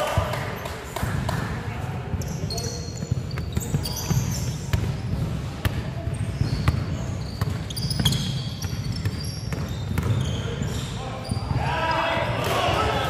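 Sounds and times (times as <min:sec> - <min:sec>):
sneakers squeaking on floor: 0:00.5 - 0:12.4
basketball bouncing on wooden floor: 0:02.1 - 0:10.4.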